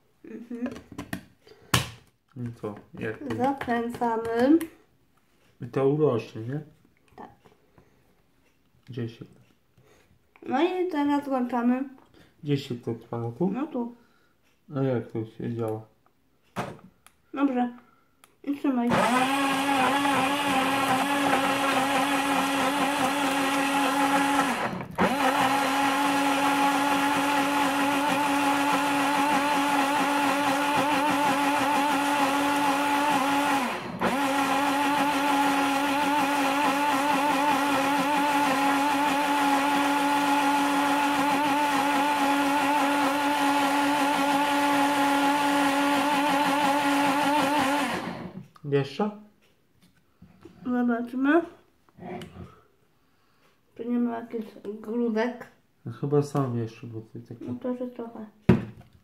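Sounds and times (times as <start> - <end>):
blender motor whine: 18.9 - 48.4.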